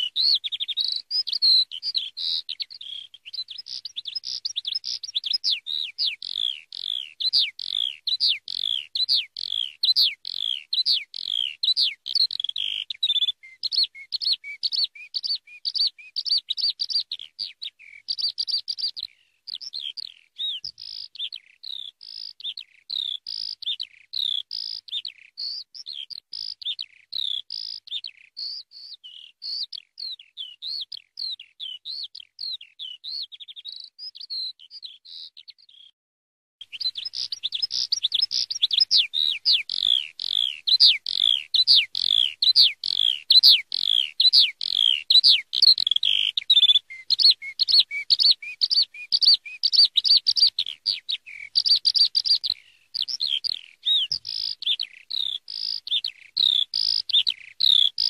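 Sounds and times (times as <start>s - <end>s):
skylark singing: 0.0s - 35.9s, 36.6s - 58.0s.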